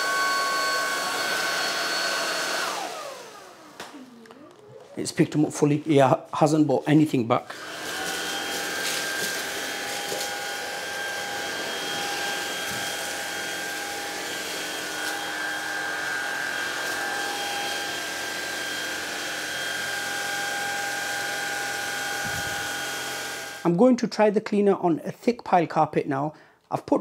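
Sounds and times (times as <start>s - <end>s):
stick vacuum motor whine: 0.0s - 4.8s, 7.5s - 23.6s
vacuum head on hard floor: 7.6s - 20.0s.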